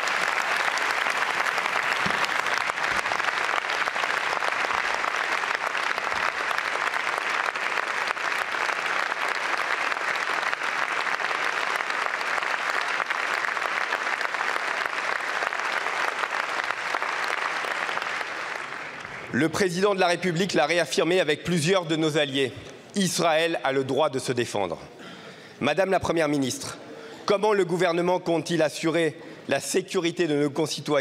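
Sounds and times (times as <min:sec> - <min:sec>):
crowd applauding: 0:00.0 - 0:19.4.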